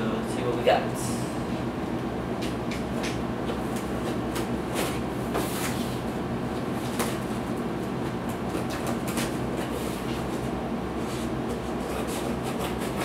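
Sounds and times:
low background hum: 0:00.0 - 0:13.0
scissors slitting packing tape: 0:11.9 - 0:13.0.

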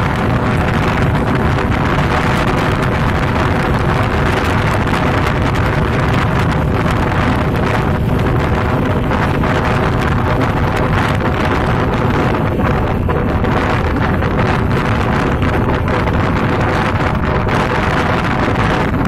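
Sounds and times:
vehicle low rumble: 0:00.0 - 0:19.0
wind on microphone: 0:00.0 - 0:19.0.

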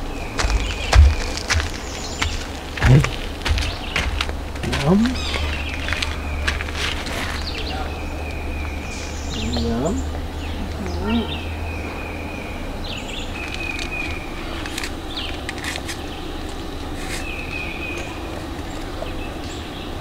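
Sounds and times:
low rumble: 0:00.0 - 0:12.3.

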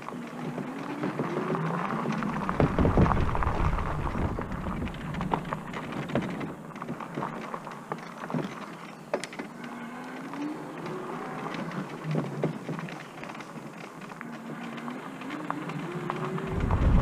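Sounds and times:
small rattling clicks: 0:00.0 - 0:17.0
tyres crunching on gravel: 0:00.0 - 0:17.0
wind buffeting microphone: 0:02.0 - 0:07.4, 0:16.2 - 0:17.0
faint rising whine: 0:16.2 - 0:17.0.

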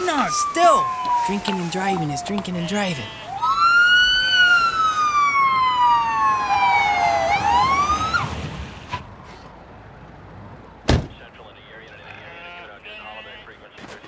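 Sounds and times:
police siren wailing: 0:00.0 - 0:08.6.

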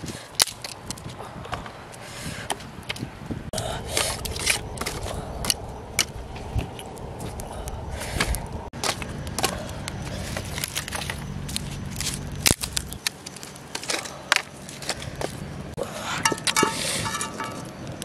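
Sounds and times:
wood fire crackling: 0:04.1 - 0:15.2
metal pot clanking: 0:16.2 - 0:17.7.

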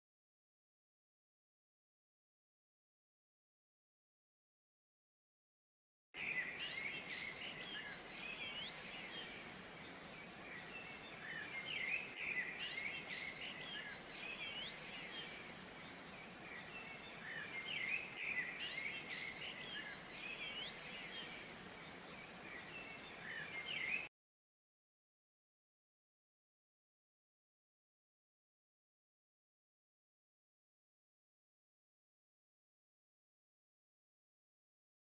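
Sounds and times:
faint steady hiss: 0:06.2 - 0:24.1
songbirds chirping and twittering: 0:06.2 - 0:24.1.

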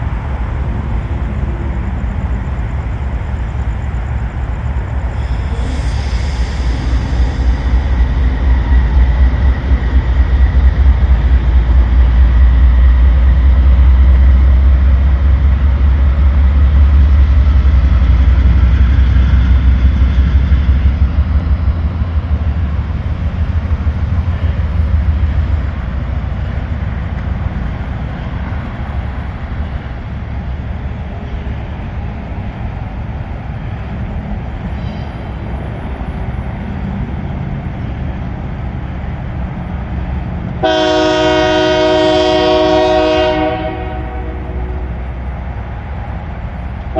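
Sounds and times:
locomotive engine rumbling: 0:00.0 - 0:46.9.

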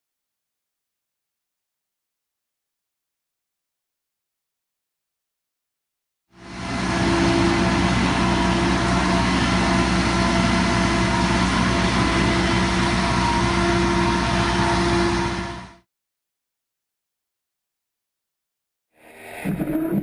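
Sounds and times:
machinery engine humming: 0:06.4 - 0:15.8.

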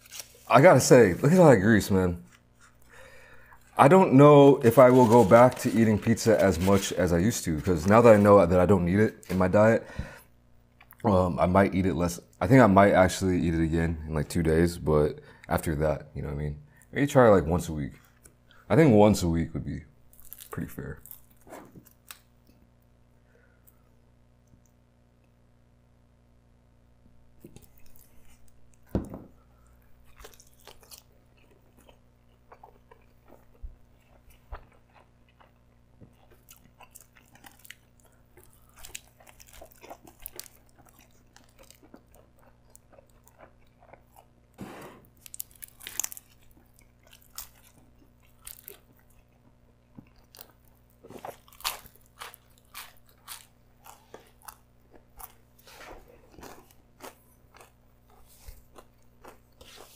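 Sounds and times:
chewing crunchy pizza crust: 0:00.0 - 0:09.7, 0:20.1 - 0:22.8, 0:27.4 - 0:59.9.

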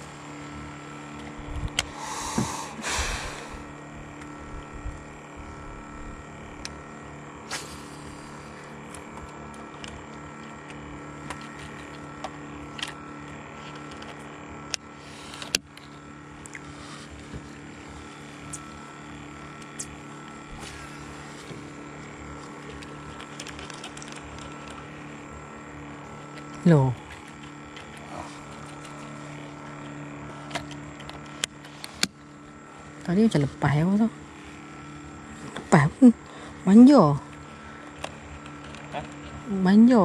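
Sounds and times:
boat motor humming: 0:00.0 - 0:40.0.

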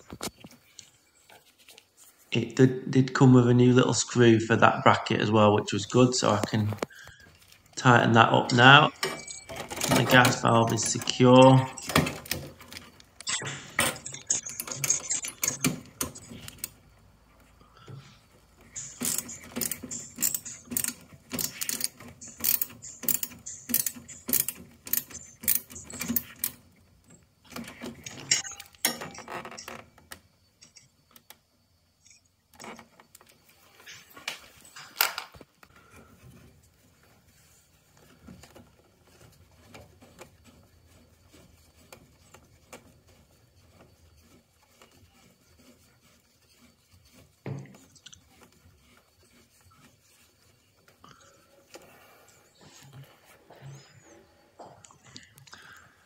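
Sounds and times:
hand tools clicking and scraping: 0:05.7 - 0:56.0
evenly spaced clicks: 0:06.2 - 0:16.8, 0:18.7 - 0:29.9.

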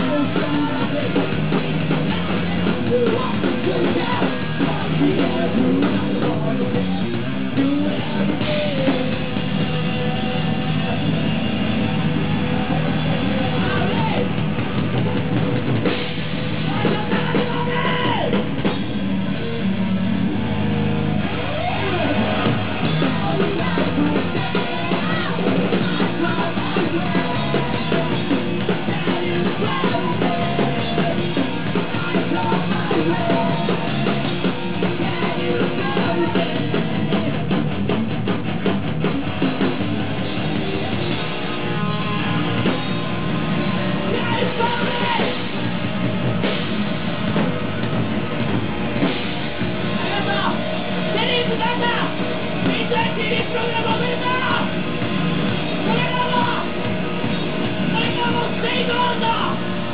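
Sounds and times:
shouted singing: 0:00.0 - 0:18.4, 0:20.6 - 0:37.6, 0:39.6 - 0:46.6, 0:49.8 - 0:54.7, 0:55.6 - 0:59.9
bass guitar: 0:00.0 - 0:59.9
distorted electric guitar: 0:00.0 - 0:59.9
drum kit: 0:00.0 - 0:59.9.

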